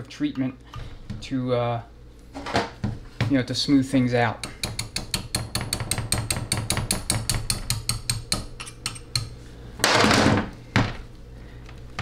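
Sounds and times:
small hammer tapping metal: 0:04.4 - 0:09.3.

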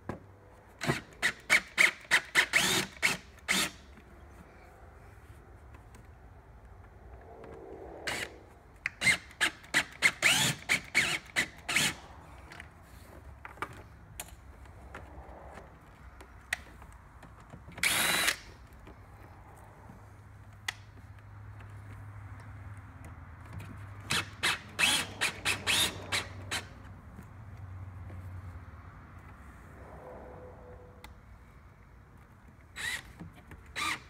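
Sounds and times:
cordless drill driving screws: 0:00.8 - 0:03.9, 0:08.9 - 0:12.0, 0:17.8 - 0:18.5, 0:24.0 - 0:26.7, 0:32.8 - 0:34.0.

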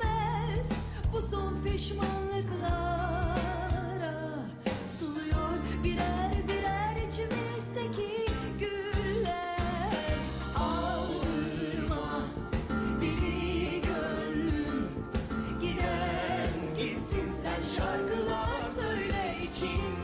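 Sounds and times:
woman singing: 0:00.0 - 0:12.4
drum beat: 0:10.0 - 0:20.0
band playing: 0:10.1 - 0:20.0.

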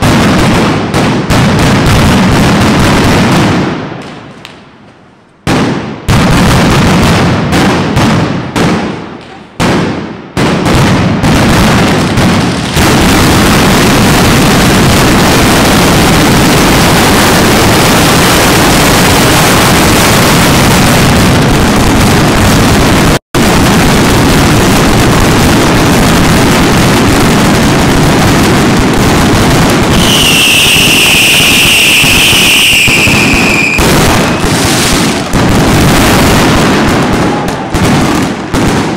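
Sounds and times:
firecracker barrage: 0:00.0 - 0:38.9
loud falling whistle: 0:30.0 - 0:34.9.

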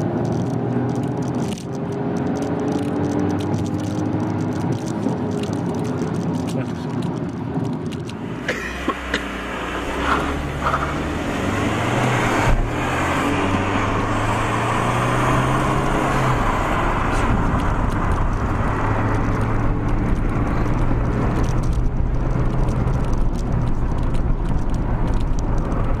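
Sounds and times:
road and wind noise: 0:00.0 - 0:26.0
car engine accelerating: 0:08.0 - 0:26.0.

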